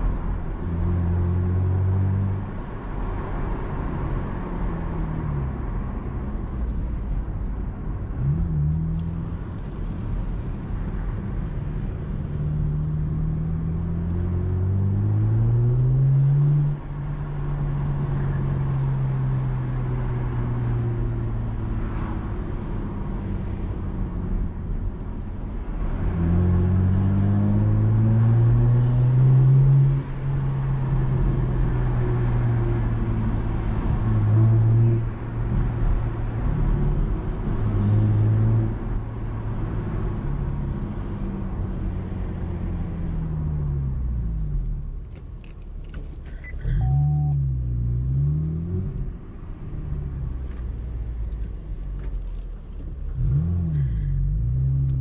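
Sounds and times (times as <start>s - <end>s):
road noise: 0.0s - 55.0s
car engine accelerating: 46.0s - 55.0s.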